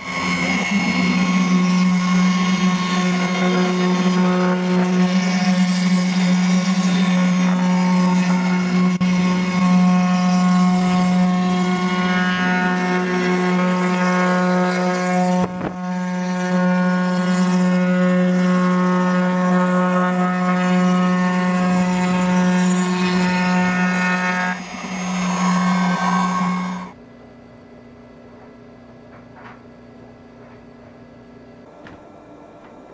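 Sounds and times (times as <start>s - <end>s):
router motor whining: 0.0s - 27.0s
faint hum: 26.9s - 32.9s.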